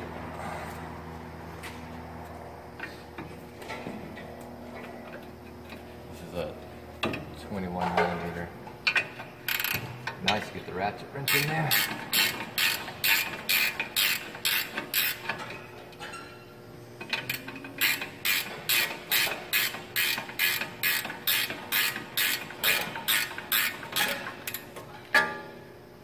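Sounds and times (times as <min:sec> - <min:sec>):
ratchet wrench clicking: 0:08.8 - 0:09.8, 0:11.3 - 0:15.4, 0:17.1 - 0:24.6.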